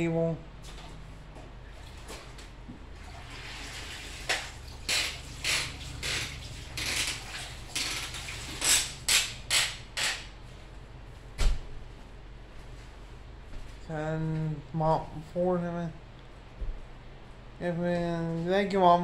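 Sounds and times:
water running into bucket: 2.9 - 9.1.

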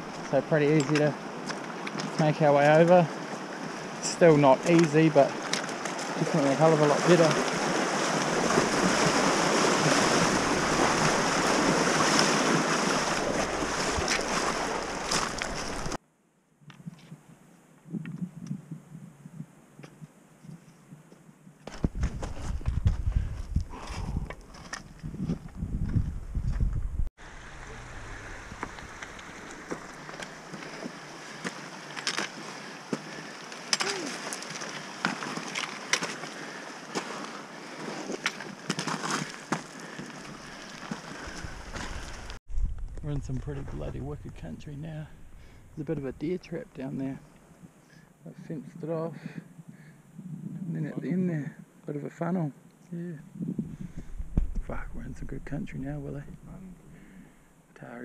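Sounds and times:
river water rushing and splashing: 0.0 - 16.0, 27.2 - 42.4
footsteps crunching over rock: 21.6 - 26.8, 28.4 - 44.3
steady rushing hiss: 27.2 - 33.6.

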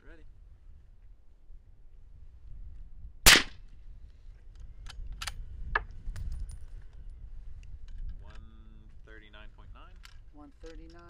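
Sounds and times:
suppressed rifle shot: 3.2 - 3.7.

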